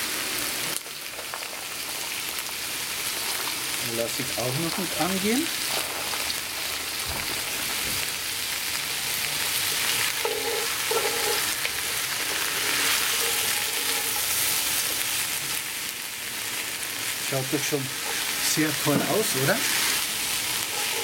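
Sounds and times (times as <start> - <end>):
vegetables sizzling in a pot: 0.0 - 21.0
wooden spoon stirring and scraping: 4.2 - 7.8, 9.4 - 15.6, 17.3 - 21.0.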